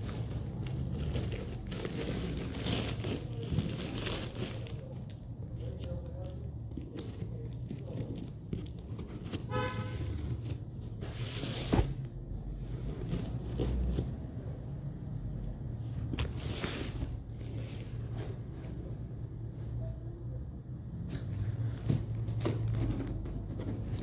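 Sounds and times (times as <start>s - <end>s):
scissors cutting plastic wrap: 0.0s - 5.0s.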